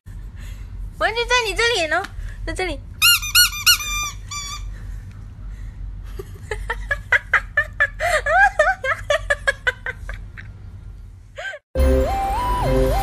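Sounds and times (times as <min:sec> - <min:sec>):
person laughing: 0:06.1 - 0:10.6.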